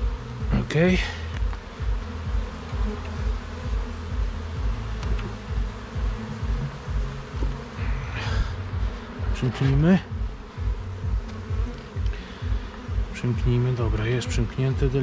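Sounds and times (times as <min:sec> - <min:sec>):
bees buzzing: 0:00.0 - 0:15.0
low rumble: 0:01.2 - 0:13.1.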